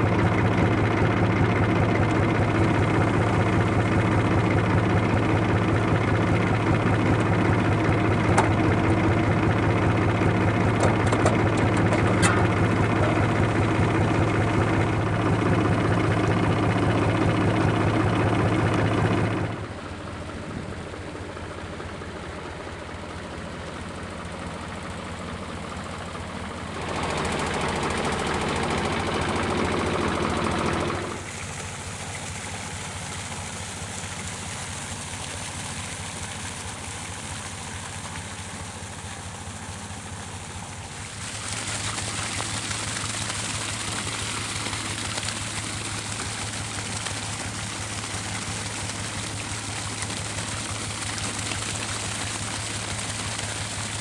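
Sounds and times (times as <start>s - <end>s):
tractor diesel engine running: 0.0s - 54.0s
liquid manure gushing onto grass: 31.1s - 54.0s.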